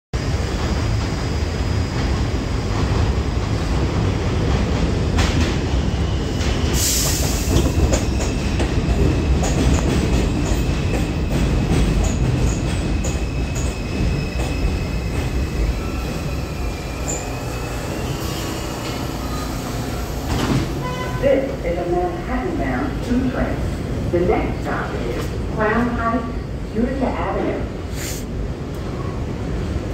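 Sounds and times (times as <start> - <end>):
train wheels rumbling on rail: 0.2 - 29.9
high wheel squeal: 12.9 - 20.2.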